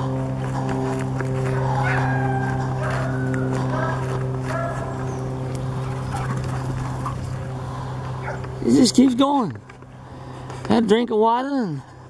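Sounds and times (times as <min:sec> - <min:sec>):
low hum: 0:00.0 - 0:12.0
dog yelping: 0:01.8 - 0:05.0.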